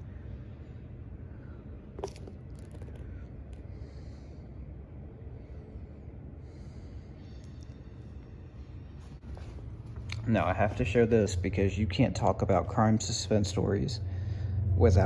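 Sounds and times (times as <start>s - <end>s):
low room rumble: 0.0s - 15.0s
book handling noise: 2.0s - 3.2s.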